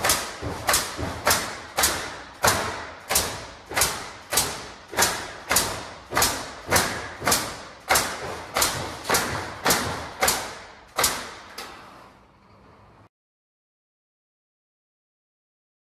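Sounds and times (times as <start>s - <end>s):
machinery knocking heavily: 0.0s - 11.5s.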